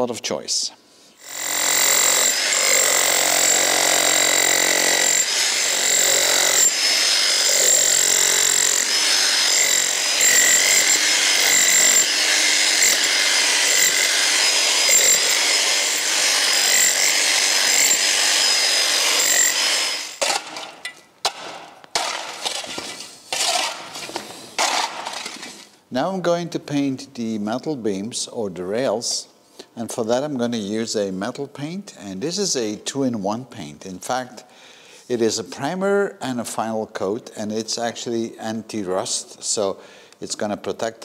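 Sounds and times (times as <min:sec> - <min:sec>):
demolition hammer chipping bricks: 0:01.3 - 0:25.6
loose bricks clattering: 0:20.2 - 0:25.7.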